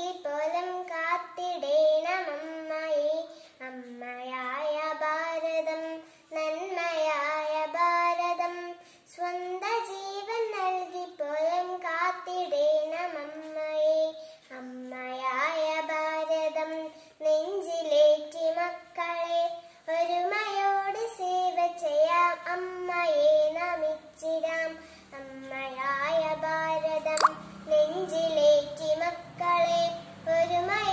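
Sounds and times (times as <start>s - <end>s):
girl singing: 0.0s - 30.9s.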